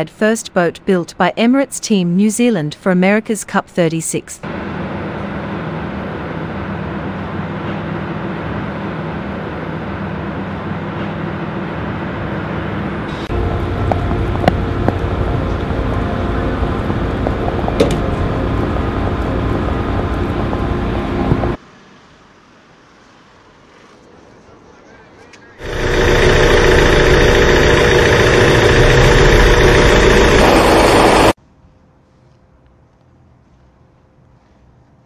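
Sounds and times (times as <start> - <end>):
machinery humming: 0.0 - 21.6, 25.6 - 31.4.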